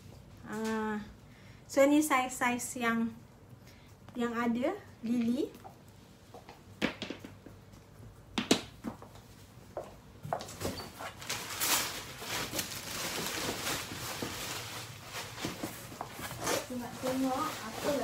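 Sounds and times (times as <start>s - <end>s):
plastic and cardboard rustling: 10.4s - 18.0s.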